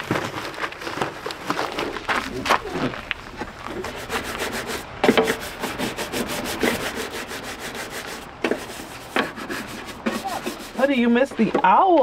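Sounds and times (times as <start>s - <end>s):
cloth scrubbing metal stove top: 3.6s - 11.4s.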